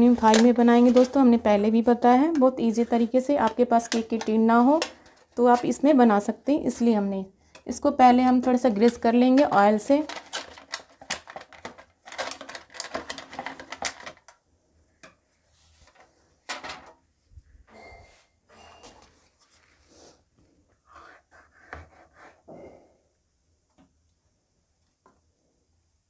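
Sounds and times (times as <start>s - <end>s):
aluminium foil crinkling: 0.0s - 1.2s, 8.4s - 14.4s.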